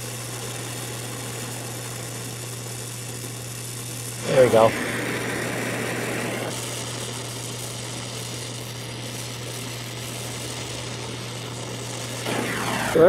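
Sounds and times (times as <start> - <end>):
torch flame hissing: 0.0 - 13.0
low hum: 12.2 - 13.0.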